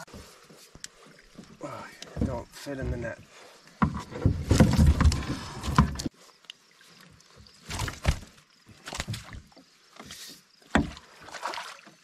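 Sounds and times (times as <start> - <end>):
water splashing around net: 7.6 - 9.6, 10.8 - 12.0.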